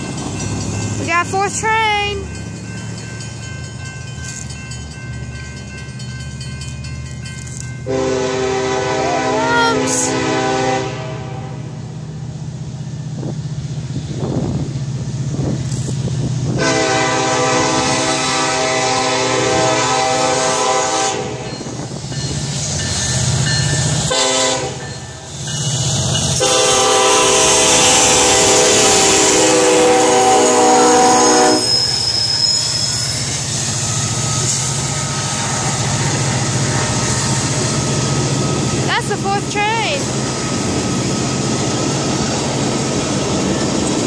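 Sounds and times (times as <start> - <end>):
train locomotive rumble: 0.0 - 44.0
train horn chord: 7.9 - 11.8, 16.6 - 21.5, 24.1 - 24.9, 26.4 - 31.8.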